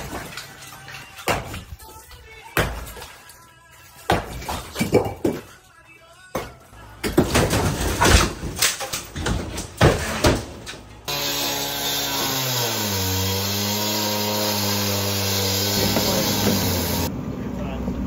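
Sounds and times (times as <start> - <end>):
power tool motor running: 11.1 - 17.1.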